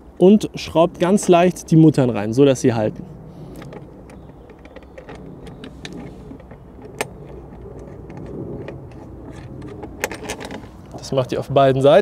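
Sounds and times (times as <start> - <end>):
low steady background rumble: 0.0 - 12.0
clicks and light metal taps: 3.6 - 11.0.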